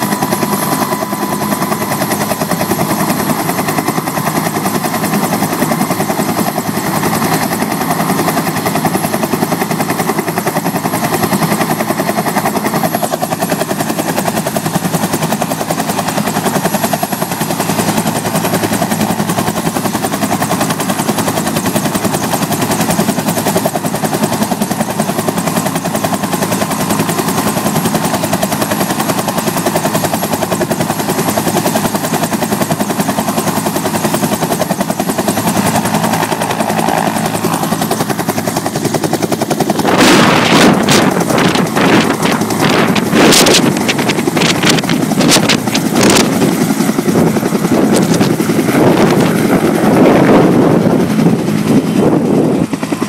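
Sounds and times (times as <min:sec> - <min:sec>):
helicopter rotor chop and turbine: 0:00.0 - 0:53.0
rotor downwash buffeting microphone: 0:39.7 - 0:52.9.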